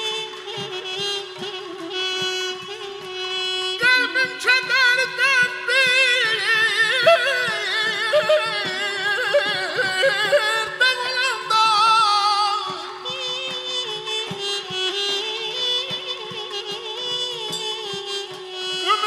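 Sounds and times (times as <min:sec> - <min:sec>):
balaban: 0:00.0 - 0:19.0
saz: 0:00.0 - 0:19.0
man singing with vibrato: 0:03.8 - 0:18.0.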